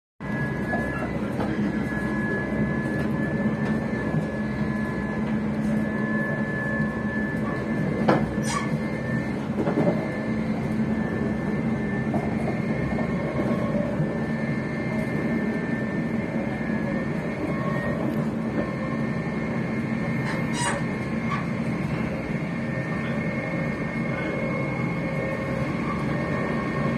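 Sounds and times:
train motor whine: 0:00.2 - 0:26.9
train rumbling: 0:00.2 - 0:26.9.

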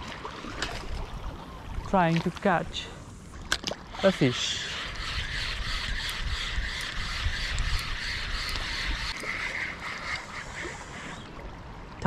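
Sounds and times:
fishing reel whirring: 0:04.4 - 0:09.7
wind on microphone: 0:04.6 - 0:09.2.

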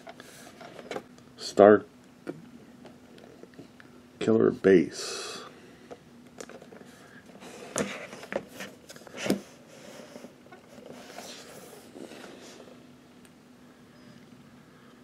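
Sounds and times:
cardboard scraping and rustling: 0:06.6 - 0:12.7.

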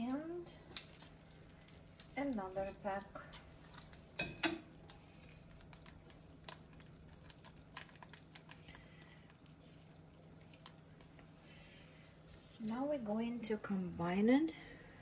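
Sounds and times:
low steady hum: 0:00.0 - 0:15.0
sauce simmering in a pan: 0:00.0 - 0:15.0
small pops and ticks: 0:05.6 - 0:09.4.

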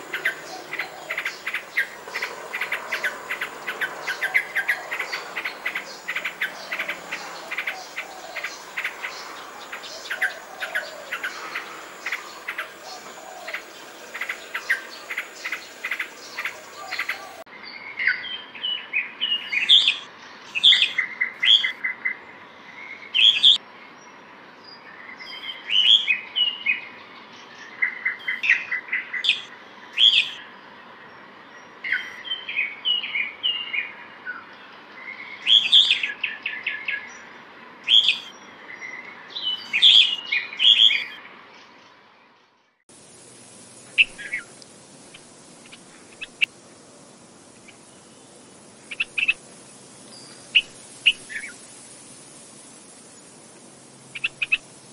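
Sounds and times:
bird notes: 0:00.0 - 0:17.4
insects chirring: 0:00.0 - 0:17.5, 0:42.9 - 0:54.9.

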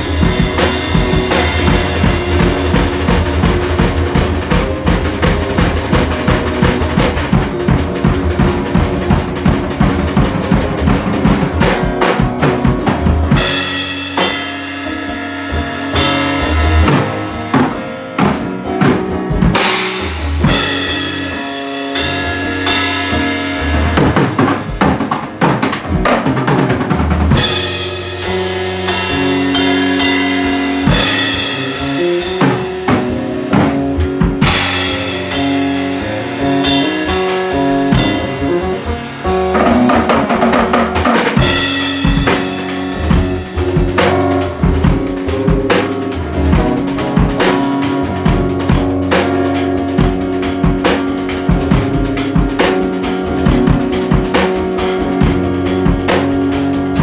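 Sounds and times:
electric guitar chords: 0:00.0 - 0:57.0
fast drumming: 0:00.0 - 0:57.0
cymbal crashes: 0:27.4 - 0:32.4.

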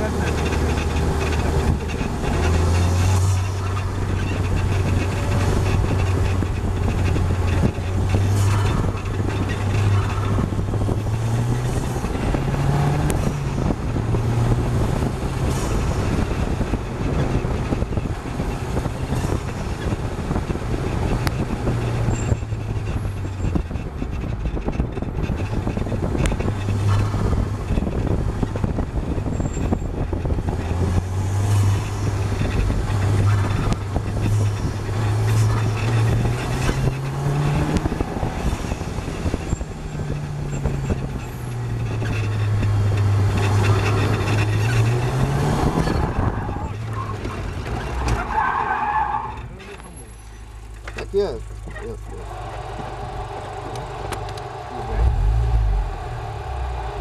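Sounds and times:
car engine accelerating: 0:00.0 - 0:57.0
wind and road noise: 0:00.0 - 0:57.0.

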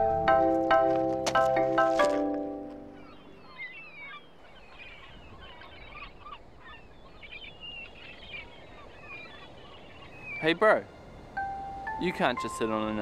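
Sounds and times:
marimba-like music: 0:00.0 - 0:03.3, 0:11.4 - 0:13.0
birds chirping: 0:00.0 - 0:13.0.

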